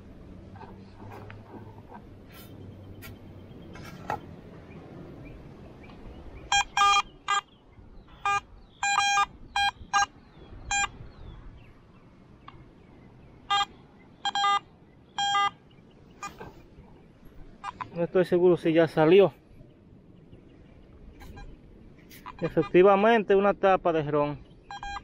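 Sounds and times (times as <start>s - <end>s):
metal detector beeps: 6.5s - 7.5s, 8.1s - 10.1s, 10.7s - 11.0s, 13.5s - 14.6s, 15.2s - 15.6s, 21.2s - 21.6s, 22.2s - 22.8s, 24.7s - 25.0s.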